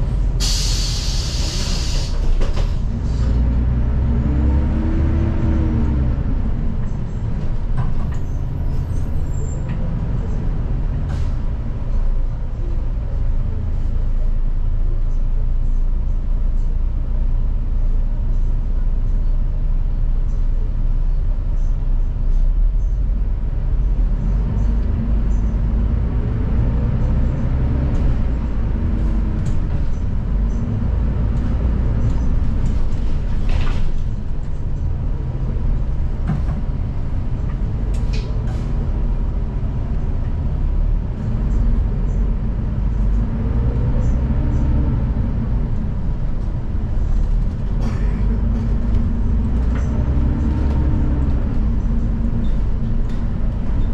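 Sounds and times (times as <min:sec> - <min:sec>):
bus engine and road rumble: 0:00.0 - 0:53.9
air hisses: 0:00.4 - 0:02.3.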